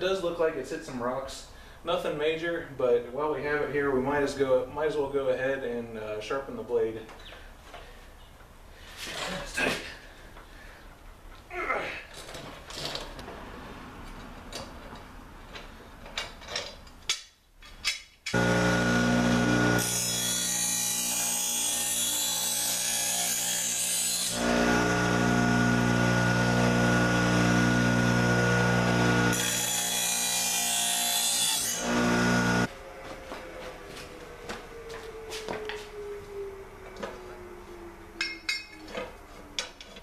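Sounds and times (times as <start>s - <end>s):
bench grinder motor hum: 18.4s - 32.7s
blade grinding rasp: 18.4s - 32.7s.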